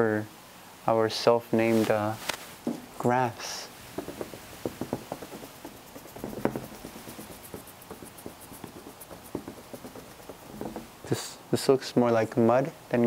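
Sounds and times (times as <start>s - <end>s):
paintbrush dabbing on paper: 3.4s - 11.4s
louder knocks: 3.9s - 11.1s.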